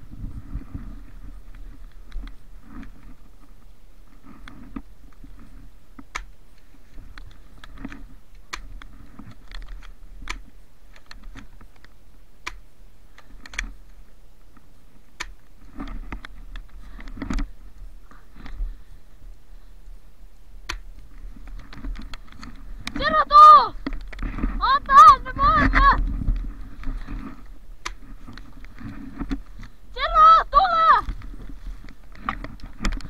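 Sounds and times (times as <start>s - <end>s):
sharp clicks: 6.0s - 6.4s, 7.1s - 14.0s, 15.1s - 15.5s, 19.3s - 27.0s.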